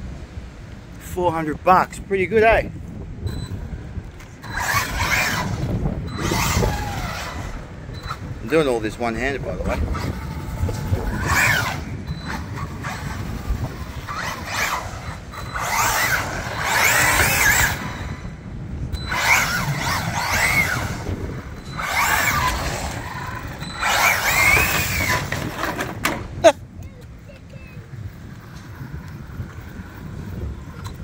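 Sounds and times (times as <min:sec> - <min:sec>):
electric motor whining: 0:04.2 - 0:26.0.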